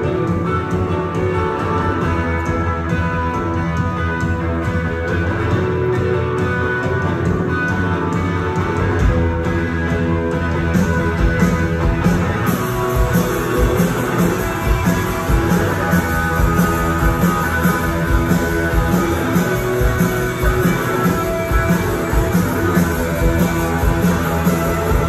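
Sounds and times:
drums steady beat: 0.0s - 25.0s
electric guitars: 0.0s - 25.0s.

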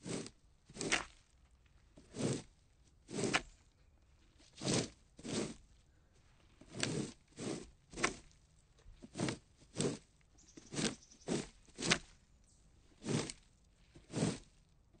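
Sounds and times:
plastic rake scraping: 0.0s - 1.3s, 2.0s - 3.6s, 4.3s - 5.8s, 6.4s - 12.2s, 12.9s - 15.0s.

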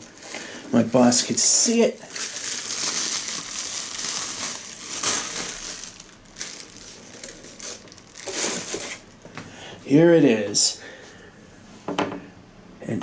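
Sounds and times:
plastic wrapping crinkling: 0.0s - 9.4s.

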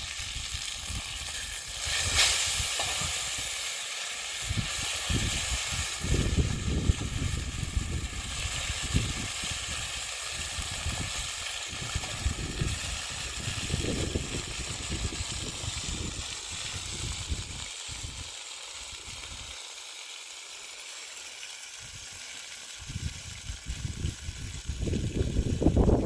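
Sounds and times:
wind rumbling on microphone: 0.0s - 3.5s, 4.4s - 18.2s, 22.8s - 26.0s
fish frying in oil: 0.0s - 26.0s.

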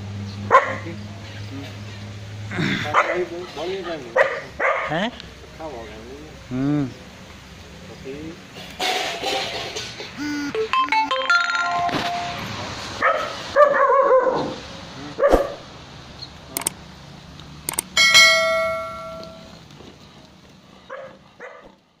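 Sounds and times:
dog barking deeply: 0.5s - 0.9s, 2.6s - 3.3s, 4.1s - 5.1s, 13.0s - 14.6s, 15.2s - 15.6s
ringing chime: 10.6s - 12.5s, 18.0s - 19.5s
clicks: 16.5s - 16.8s, 17.7s - 18.0s.

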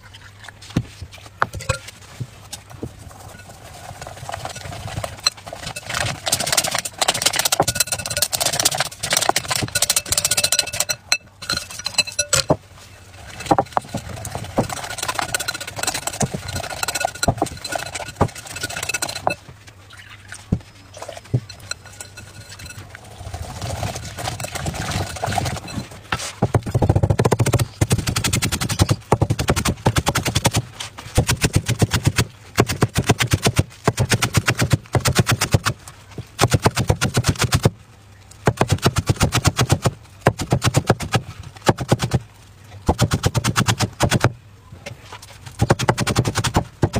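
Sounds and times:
whisk scraping glass bowl: 3.0s - 19.4s, 20.9s - 30.6s.

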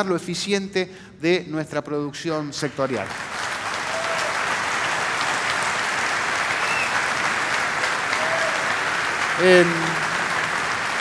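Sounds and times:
audience applauding: 2.9s - 11.0s.

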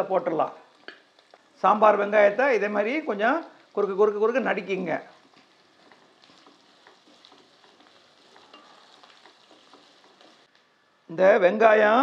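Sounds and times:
onions sizzling in a pan: 0.0s - 12.0s
wooden spatula stirring: 2.9s - 10.9s.

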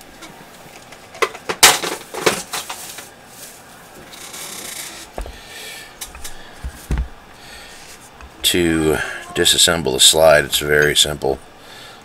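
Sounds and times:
dull knocks: 5.2s - 5.4s, 6.2s - 7.2s.

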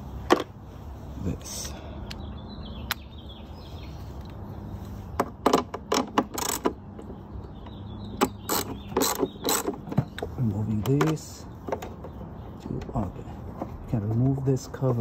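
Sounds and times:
ratchet wrench clicking: 8.2s - 9.8s.

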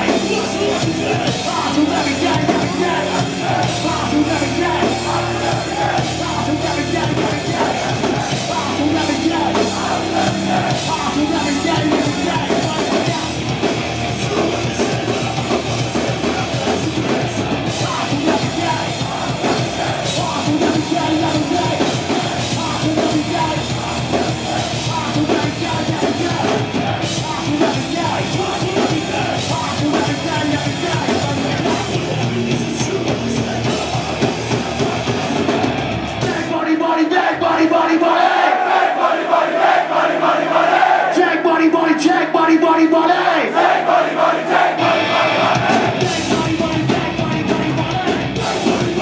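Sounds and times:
distorted electric guitar: 0.0s - 36.7s, 44.8s - 49.0s
crowd yelling: 0.0s - 49.0s
drums: 0.0s - 49.0s
shouted rapped vocal: 36.2s - 49.0s.

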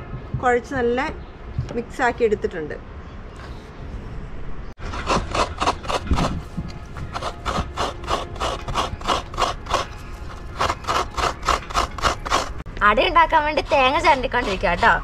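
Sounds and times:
coconut scraping strokes: 4.8s - 12.7s, 13.3s - 15.0s.

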